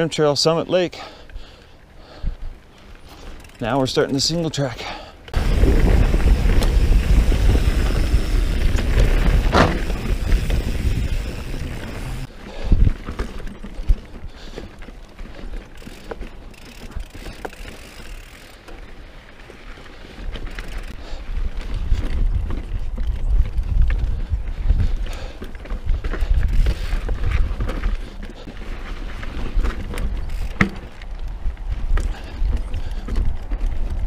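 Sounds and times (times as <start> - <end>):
bike tyres rumbling and rattling: 1.0 - 34.0
bike knocking over rocks: 5.4 - 18.5, 29.2 - 31.1.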